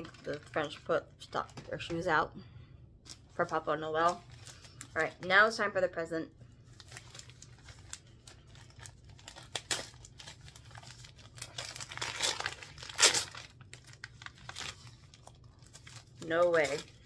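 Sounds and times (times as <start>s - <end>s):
gift wrap tearing and crumpling: 6.7s - 17.0s.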